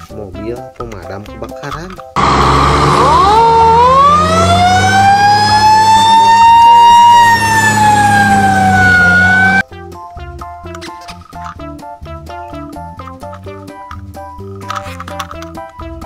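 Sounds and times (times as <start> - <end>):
fire truck siren wailing: 2.2 - 9.6.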